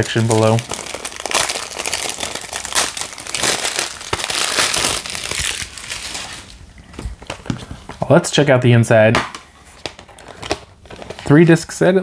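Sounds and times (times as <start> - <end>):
plastic wrap crinkling and tearing: 0.0 - 6.6, 9.6 - 11.5.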